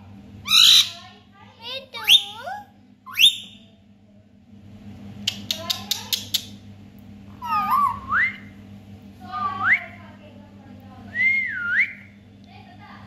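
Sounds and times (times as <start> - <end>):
parakeet whistling: 0.5 - 1.0, 2.0 - 2.5, 3.1 - 3.6, 7.4 - 8.5.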